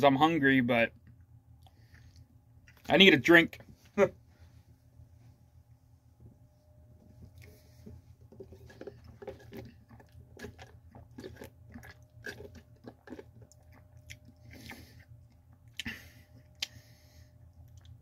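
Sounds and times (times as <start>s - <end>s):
man chewing and swallowing: 0.9s - 2.9s, 7.0s - 18.0s.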